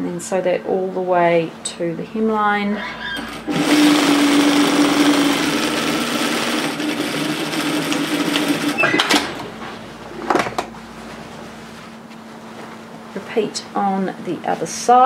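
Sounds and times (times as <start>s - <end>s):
sewing machine running: 3.0s - 9.6s.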